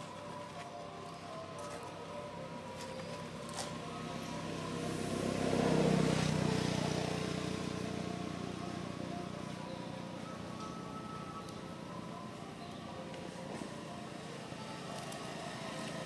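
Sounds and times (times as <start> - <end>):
motor vehicle passing by: 2.7 - 11.1, 14.1 - 16.0.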